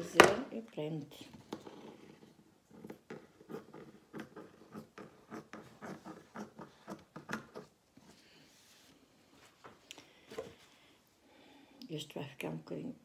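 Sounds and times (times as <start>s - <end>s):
soft sliding hiss: 8.0s - 11.0s.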